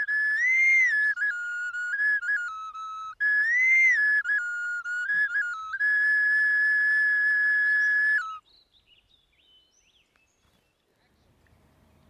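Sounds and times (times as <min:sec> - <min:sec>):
flute melody: 0:00.0 - 0:08.4.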